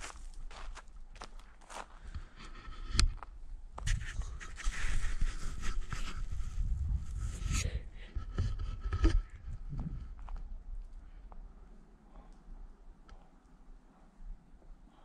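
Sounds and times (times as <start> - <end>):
footsteps crunching on leaves and stones: 0.0 - 2.0.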